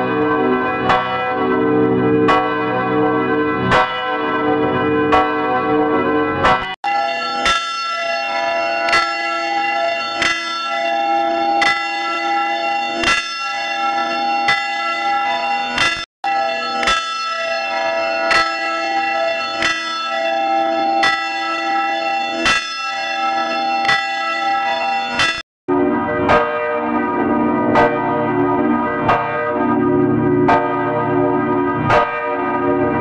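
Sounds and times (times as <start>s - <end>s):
church bell ringing: 0.0s - 33.0s.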